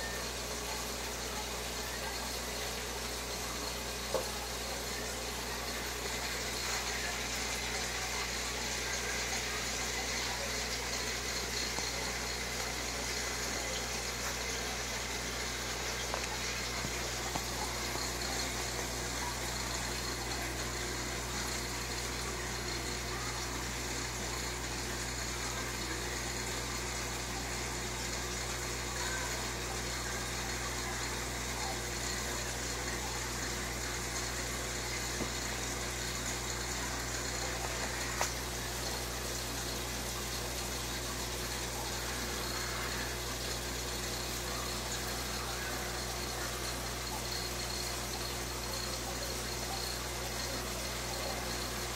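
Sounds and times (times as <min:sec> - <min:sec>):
aquarium filter water rushing: 0:00.0 - 0:51.9.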